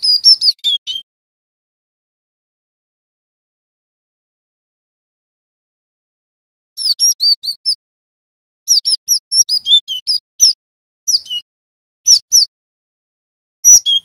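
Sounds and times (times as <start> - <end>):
bird chirping: 0.0 - 1.0, 6.8 - 7.8, 8.7 - 11.5, 12.1 - 12.5, 13.6 - 14.0.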